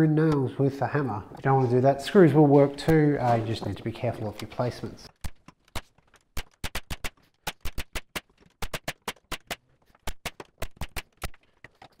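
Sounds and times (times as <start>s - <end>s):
nail gun firing: 5.7s - 11.4s.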